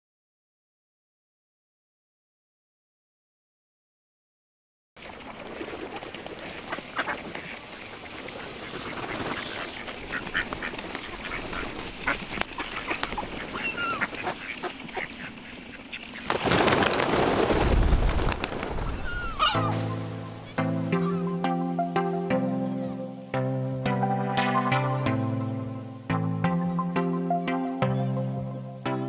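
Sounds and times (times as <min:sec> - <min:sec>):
rush of wingbeats: 0:05.0 - 0:21.2
geese honking: 0:08.3 - 0:16.2, 0:19.0 - 0:21.4
soft music: 0:19.4 - 0:29.0.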